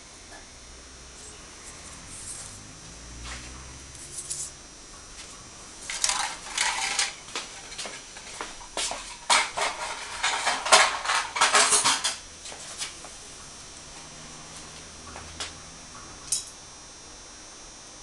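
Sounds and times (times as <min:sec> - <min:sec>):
metal tools clinking and clattering: 0:05.9 - 0:08.3, 0:09.2 - 0:12.2.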